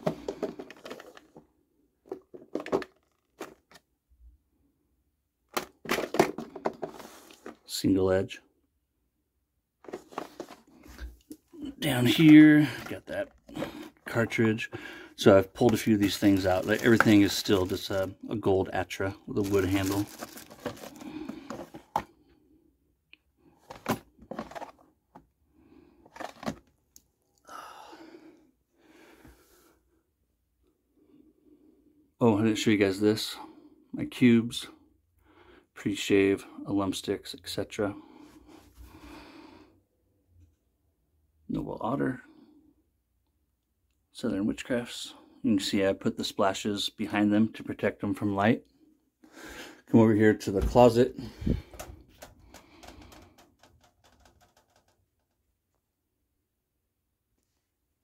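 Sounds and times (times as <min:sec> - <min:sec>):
plastic drawers clicking and knocking: 0:00.0 - 0:01.4, 0:02.0 - 0:03.8, 0:05.5 - 0:07.6, 0:15.6 - 0:18.0, 0:19.7 - 0:22.1, 0:23.6 - 0:24.8, 0:26.1 - 0:26.6, 0:50.6 - 0:55.0
plastic clicks and knocks: 0:51.6 - 0:55.4.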